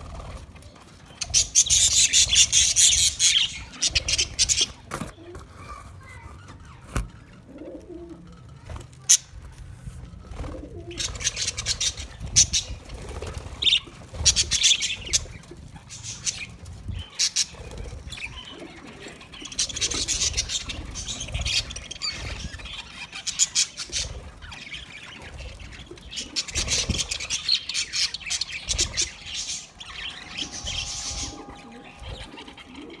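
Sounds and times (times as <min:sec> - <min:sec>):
budgerigars chattering and chirping: 0:01.1 - 0:04.8, 0:10.9 - 0:33.0.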